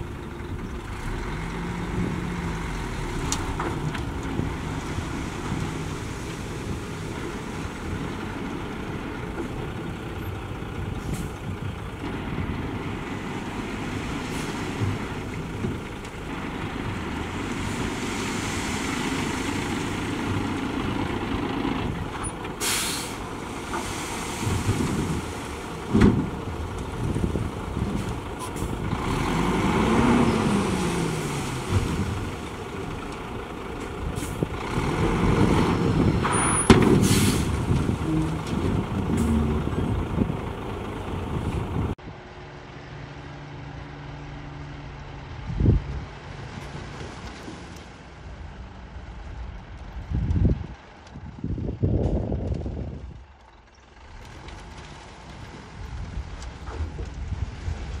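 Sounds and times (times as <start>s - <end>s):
diesel truck engines running: 0.0s - 58.0s
air brakes hissing: 22.6s - 25.1s, 36.4s - 38.2s.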